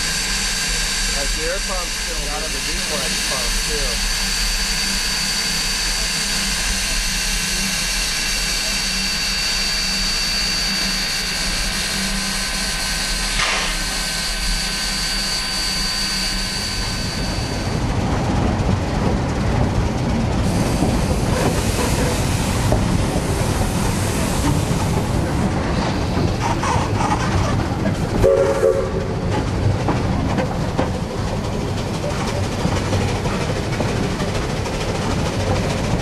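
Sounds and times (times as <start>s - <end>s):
steam hissing: 0.0s - 17.8s, 20.4s - 27.3s
train cars rumbling on track: 0.0s - 36.0s.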